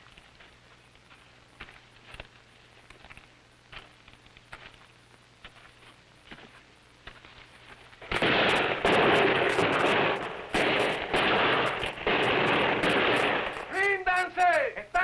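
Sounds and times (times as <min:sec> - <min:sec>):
heavy automatic gunfire: 0:08.0 - 0:13.8.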